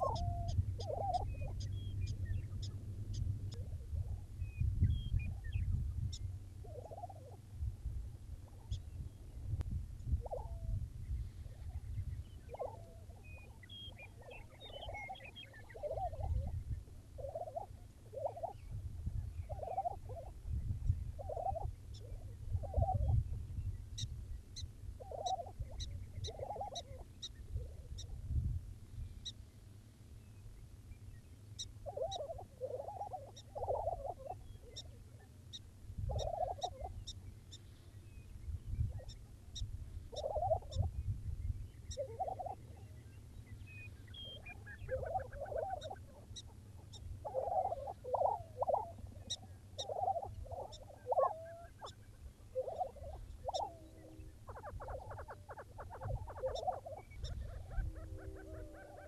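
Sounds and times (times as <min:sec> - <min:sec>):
bubbling gobble-like bird calls: 0:00.0 - 0:01.7, 0:06.6 - 0:07.4, 0:10.2 - 0:10.7, 0:12.4 - 0:16.6, 0:17.2 - 0:18.7, 0:19.4 - 0:20.4, 0:21.2 - 0:23.2, 0:25.0 - 0:27.8, 0:31.8 - 0:35.3, 0:36.1 - 0:37.0, 0:40.1 - 0:40.9, 0:41.9 - 0:43.0, 0:44.1 - 0:59.0.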